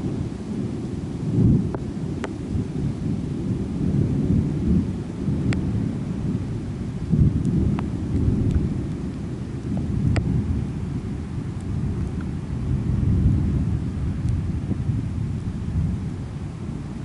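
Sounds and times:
rolling thunder: 0.0s - 17.0s
raindrop ticks: 1.6s - 2.4s, 7.2s - 10.4s, 11.5s - 12.4s.

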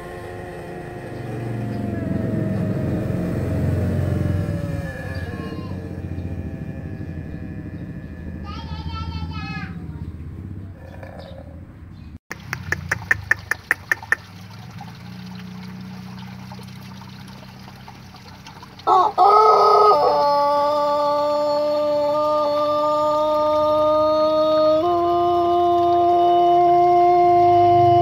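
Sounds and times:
rooster crowing: 0.0s - 8.7s, 18.8s - 28.0s.

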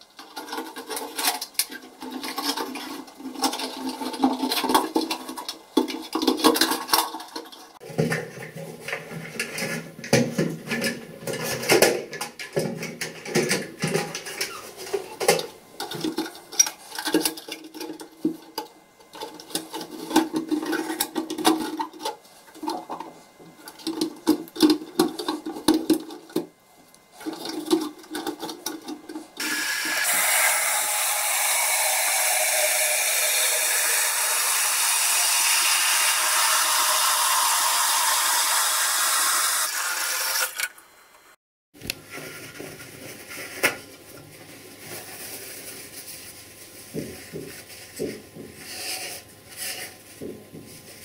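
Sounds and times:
shower spraying water into cistern: 29.4s - 40.8s.

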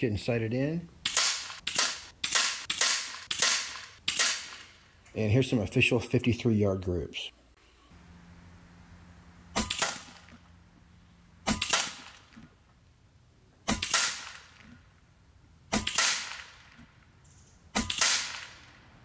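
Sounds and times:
air rifle shots: 1.0s - 4.9s, 9.5s - 10.4s, 11.4s - 12.4s, 13.6s - 14.8s, 15.7s - 17.0s, 17.7s - 18.9s.

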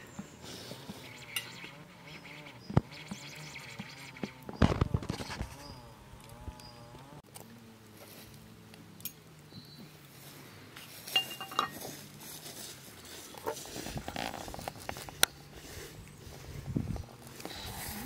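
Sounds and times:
dishes and utensils clinking: 11.1s - 11.8s.

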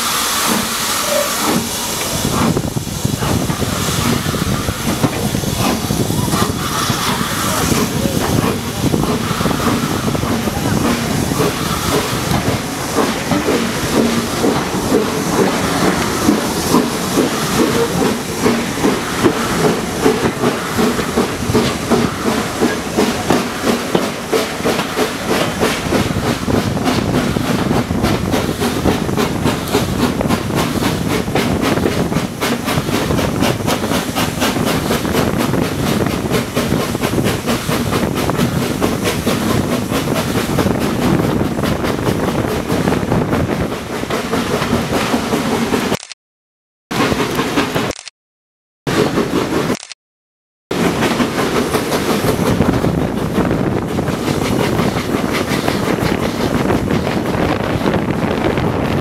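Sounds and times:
steam locomotive exhaust beats: 0.0s - 46.0s, 50.7s - 59.0s
train wheels clattering on rails: 0.0s - 46.0s, 46.9s - 48.0s, 48.9s - 49.8s, 50.7s - 59.0s.

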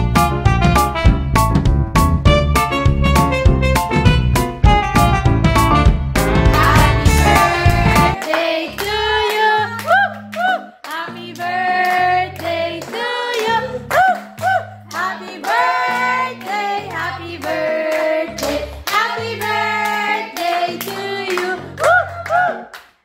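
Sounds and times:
song with sung melody and beat: 6.2s - 8.2s
hands clapping along: 6.6s - 16.6s, 17.4s - 23.0s.

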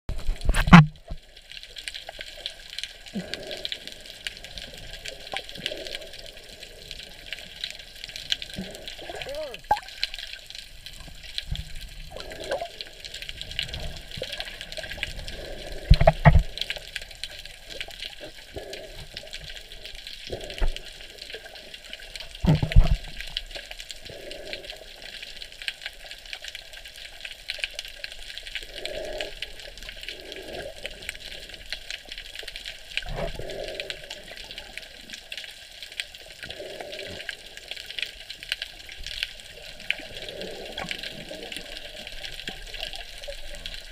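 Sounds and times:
underwater sea hiss: 3.1s - 7.9s, 12.1s - 16.8s, 23.6s - 25.5s, 28.4s - 35.2s, 36.2s - 38.2s, 38.9s - 43.8s.

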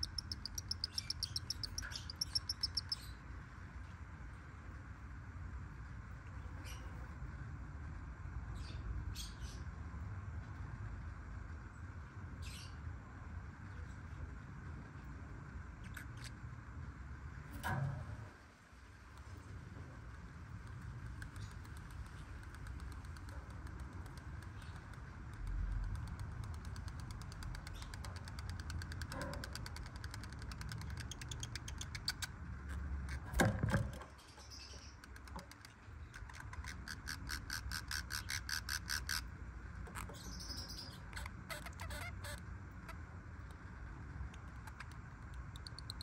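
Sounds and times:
lovebirds clicking: 0.0s - 3.1s, 20.5s - 32.4s, 33.1s - 39.2s
lovebirds chirping: 0.0s - 3.2s, 40.0s - 42.4s.

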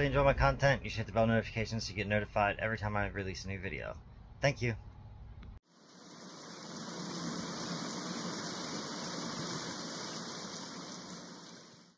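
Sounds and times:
steady rushing noise: 5.8s - 11.9s.

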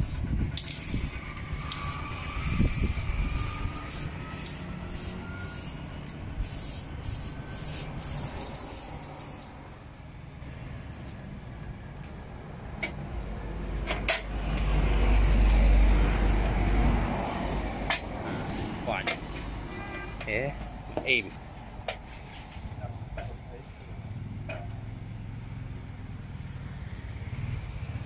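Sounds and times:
aerosol spray can hissing: 0.0s - 5.8s, 6.4s - 9.5s.

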